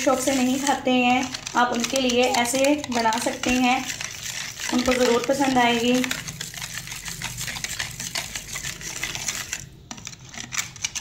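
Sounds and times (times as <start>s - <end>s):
whisk clicking against bowl: 0.0s - 11.0s.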